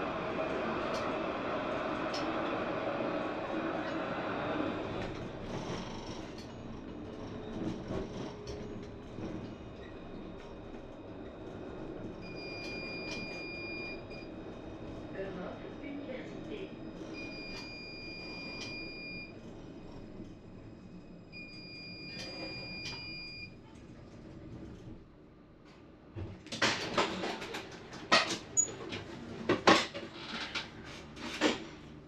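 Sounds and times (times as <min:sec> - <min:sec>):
tram electronic beep: 0:05.0 - 0:14.9, 0:16.2 - 0:23.6.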